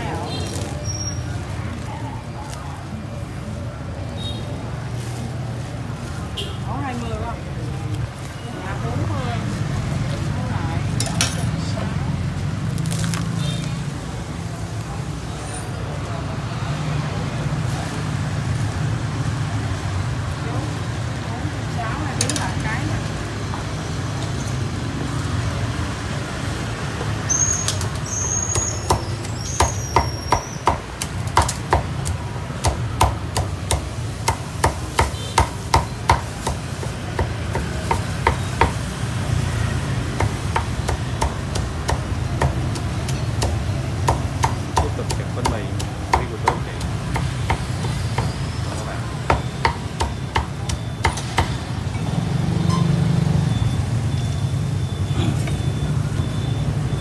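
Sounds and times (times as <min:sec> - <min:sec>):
meat cleaver chopping: 0:28.6 - 0:38.9, 0:40.0 - 0:48.4, 0:49.3 - 0:51.6.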